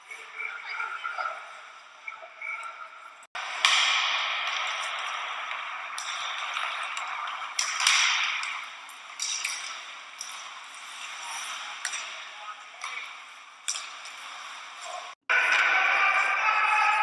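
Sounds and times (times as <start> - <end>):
hockey sticks and puck clacking: 2.2 - 17.0
skates on ice: 3.3 - 17.0
crowd noise: 15.3 - 17.0.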